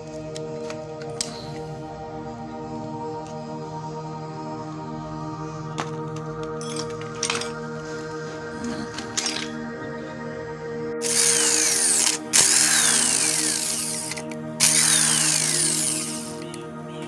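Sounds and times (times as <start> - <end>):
electric impact wrench: 11.0 - 16.4.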